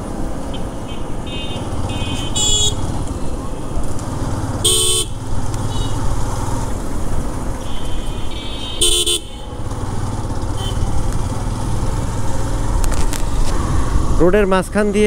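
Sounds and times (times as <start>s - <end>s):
loud horn honk: 1.3s - 2.9s, 4.6s - 6.0s, 7.6s - 9.5s, 10.5s - 10.9s
motorcycle engine running: 1.5s - 14.2s.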